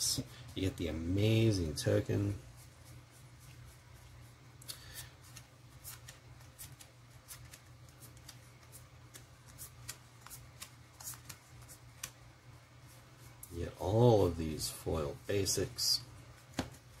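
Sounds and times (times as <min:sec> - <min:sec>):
low steady hum: 0:00.0 - 0:17.0
cards flicking: 0:05.2 - 0:12.2.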